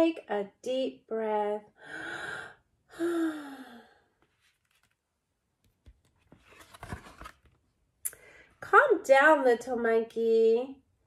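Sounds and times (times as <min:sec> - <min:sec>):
woman breathing in and sighing: 0:01.8 - 0:04.2.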